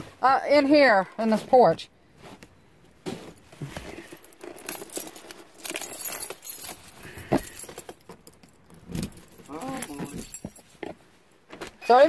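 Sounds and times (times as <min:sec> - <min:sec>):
keys jangling: 0:03.9 - 0:10.8.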